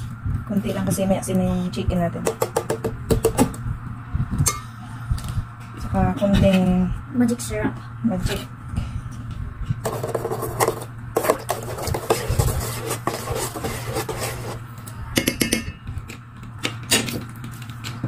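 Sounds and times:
metal spoon scraping pot: 9.9s - 14.6s.

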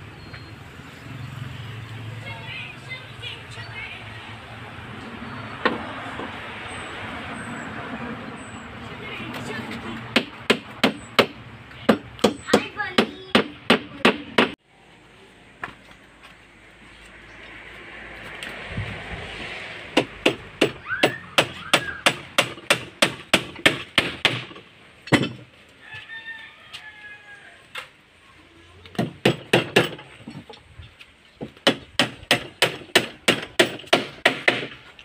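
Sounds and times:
hammer driving nails into wood: 29.0s - 30.1s, 31.6s - 34.8s.

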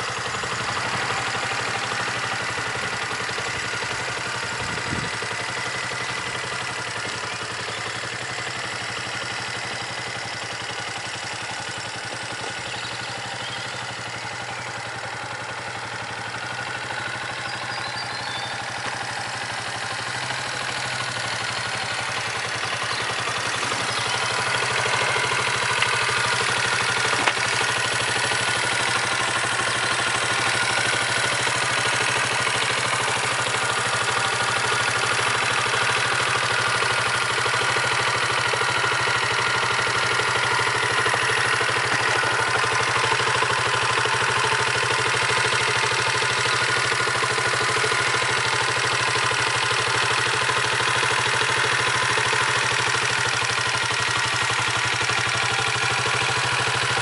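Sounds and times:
motorcycle engine idling: 0.0s - 57.0s.

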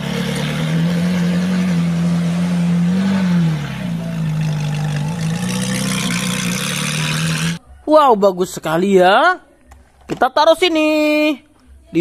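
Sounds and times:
car engine running: 0.0s - 7.6s.

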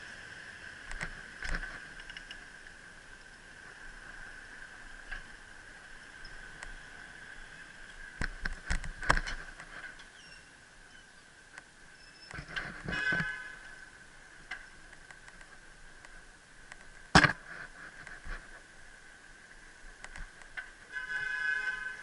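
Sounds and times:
bicycle ticking and rattling: 0.9s - 2.8s.

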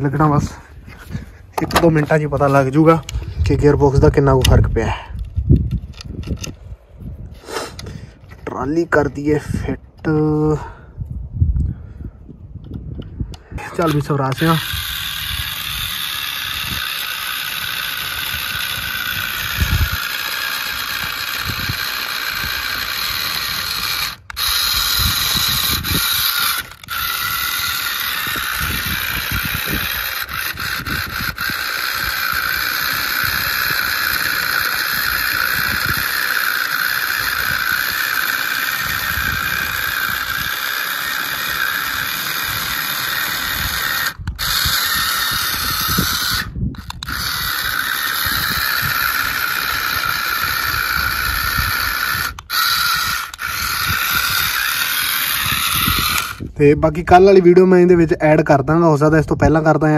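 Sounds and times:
electric motor whining: 12.9s - 57.6s.

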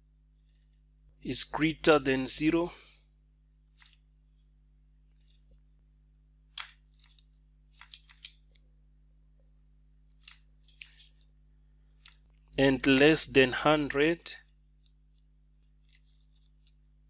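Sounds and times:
keyboard typing: 0.5s - 0.8s.

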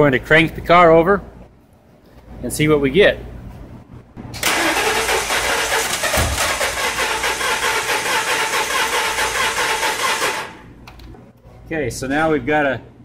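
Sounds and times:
starter motor cranking engine: 4.4s - 10.7s.

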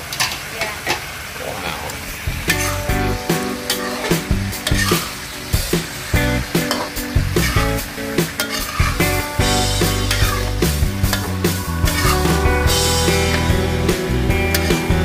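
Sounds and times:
food sizzling: 0.0s - 15.0s
background music: 2.4s - 15.0s
metal spatula scraping a wok: 2.5s - 2.8s, 3.7s - 5.2s, 6.6s - 9.2s, 9.8s - 12.4s.

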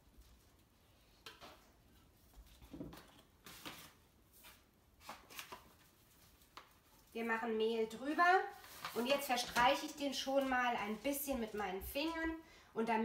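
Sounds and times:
flour bag rustling: 8.4s - 11.6s.

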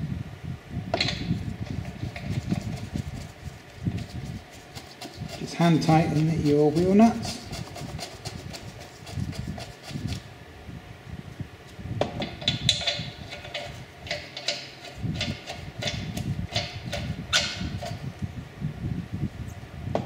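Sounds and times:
faint steady hum: 0.0s - 20.0s
metallic clicks of wheel nuts: 12.4s - 18.0s.

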